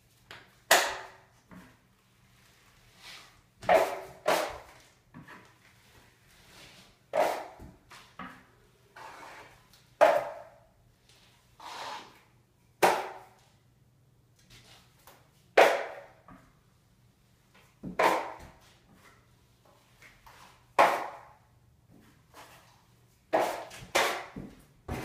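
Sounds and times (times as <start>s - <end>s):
drywall knife scraping: 2.9s - 5.4s, 6.4s - 8.1s, 9.0s - 10.4s, 11.6s - 12.3s, 17.9s - 18.8s, 20.8s - 21.4s, 22.3s - 25.0s.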